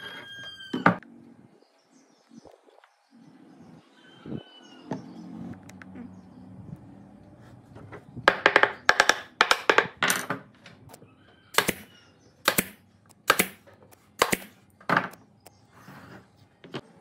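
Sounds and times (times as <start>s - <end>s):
pneumatic nail gun firing: 11.6s - 13.6s, 14.2s - 14.6s.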